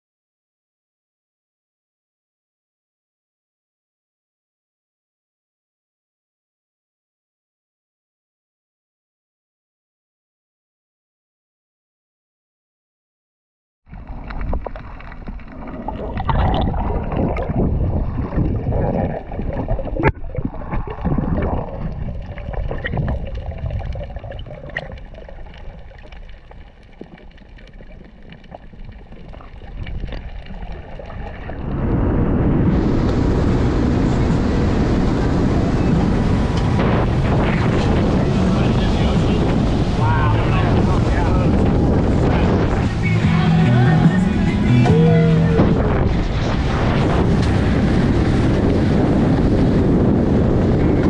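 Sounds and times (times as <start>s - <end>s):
underwater water gurgling: 13.9s - 51.0s
wind on microphone: 15.8s - 25.0s, 29.7s - 51.0s
motorboat running fast: 31.4s - 51.0s.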